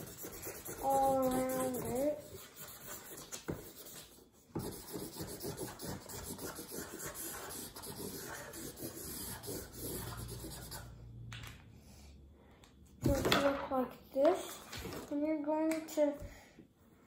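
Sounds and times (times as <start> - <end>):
marker scribbling on paper: 0.0 - 11.0.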